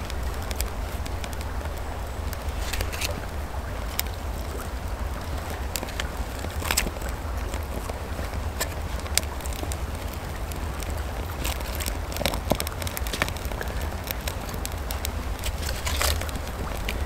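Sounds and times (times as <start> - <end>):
fire crackling and snapping: 0.0 - 17.0
steady low rumble: 0.0 - 17.0
brief rustle: 2.6 - 3.2.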